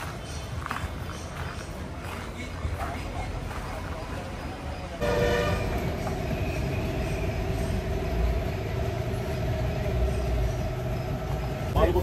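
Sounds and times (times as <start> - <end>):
machine drone with whine: 5.0 - 12.0.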